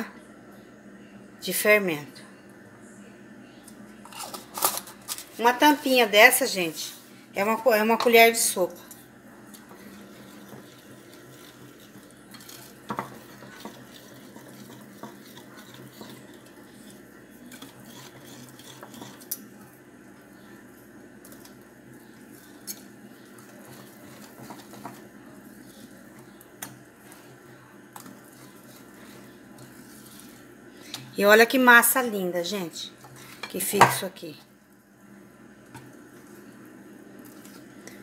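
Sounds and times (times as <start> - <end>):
whisk swishing through batter: 9.4 - 19.8, 20.7 - 31.2, 36.1 - 38.0.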